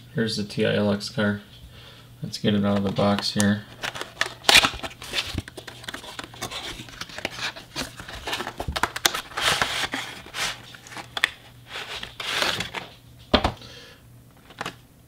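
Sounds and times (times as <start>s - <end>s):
plastic tray scraping and crinkling: 2.8s - 13.0s
cardboard box being opened: 3.8s - 12.9s.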